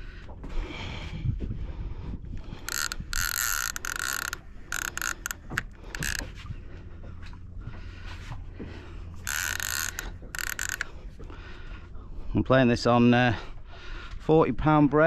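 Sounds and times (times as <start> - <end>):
fishing reel drag buzzing: 2.4 - 6.3, 9.1 - 11.1.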